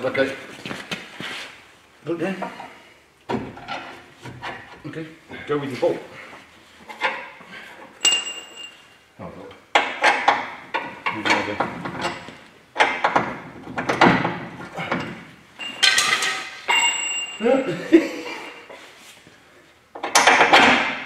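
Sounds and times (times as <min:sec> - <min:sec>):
ringing metal clinks: 0:08.0 - 0:09.0, 0:15.6 - 0:17.7.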